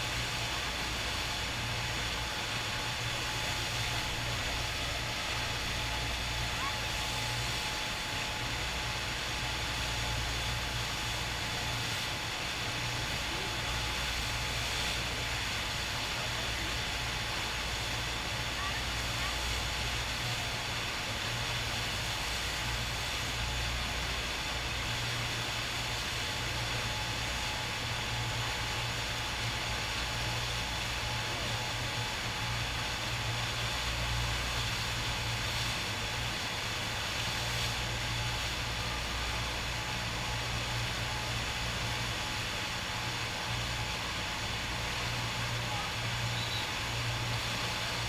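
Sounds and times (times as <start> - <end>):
rushing water jet: 0.0 - 48.0.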